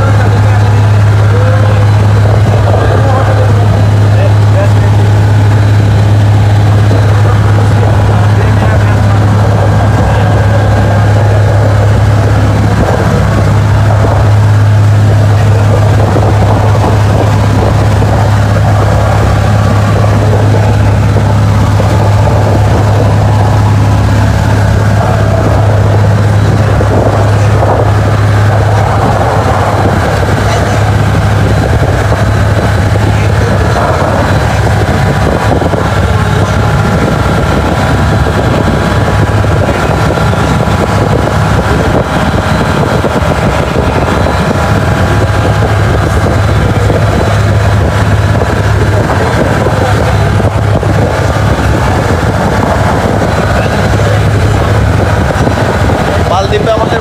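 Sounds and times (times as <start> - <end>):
hull rushing through water: 0.0 - 57.0
motorboat engine droning: 0.0 - 57.0
wind: 0.0 - 57.0.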